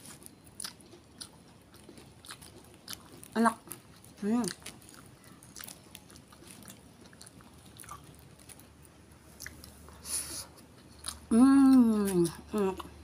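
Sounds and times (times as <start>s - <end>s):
person chewing: 0.0s - 13.0s.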